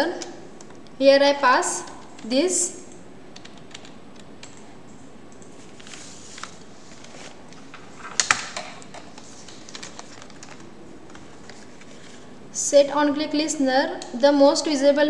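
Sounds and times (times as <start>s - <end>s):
keyboard keystrokes and clicks: 3.4s - 4.7s.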